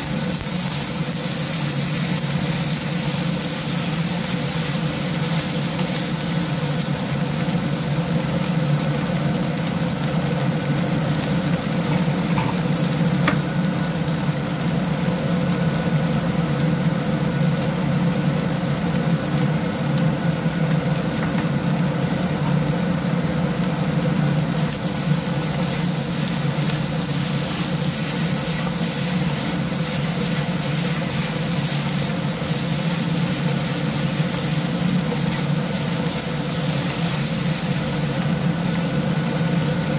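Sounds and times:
spatula stirring in a wok: 0:00.0 - 0:07.7, 0:24.4 - 0:39.9
rice sizzling in a wok: 0:00.0 - 0:39.9
steady low hum: 0:24.2 - 0:39.9.

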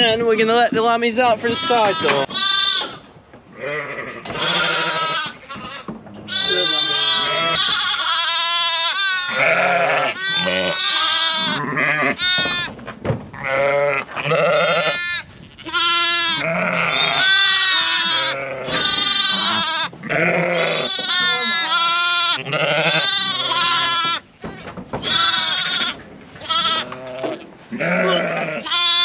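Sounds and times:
sheep and lambs bleating: 0:00.0 - 0:29.0.

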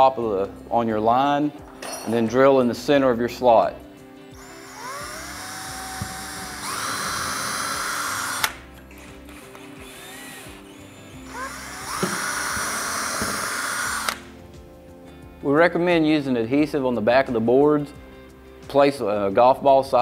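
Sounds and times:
cordless drill whining: 0:04.4 - 0:14.3.

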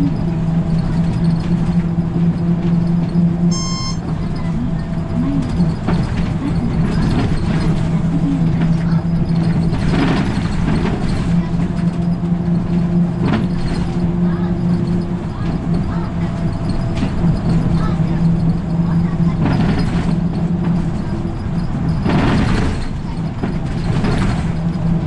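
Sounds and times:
bus diesel engine running: 0:00.0 - 0:25.0
short electronic beep: 0:03.5 - 0:04.0.

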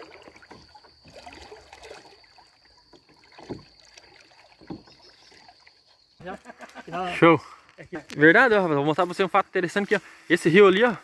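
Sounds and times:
water splashing and sloshing: 0:00.0 - 0:07.0.

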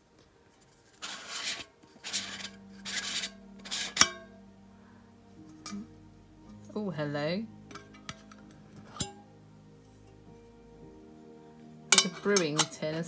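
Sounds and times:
metal lid grating on tin: 0:00.9 - 0:04.3
lid popping off with metallic ring: 0:11.9 - 0:12.8.

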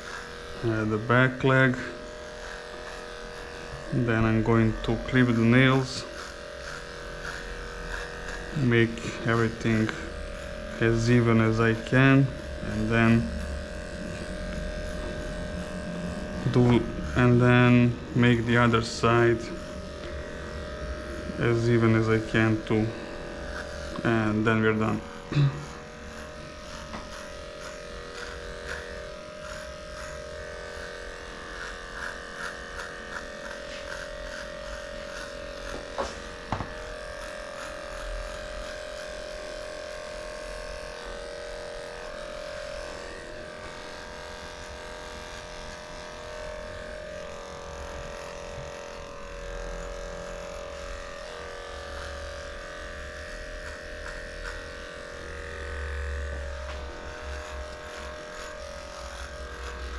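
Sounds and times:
electric clippers buzzing: 0:00.0 - 0:59.9.

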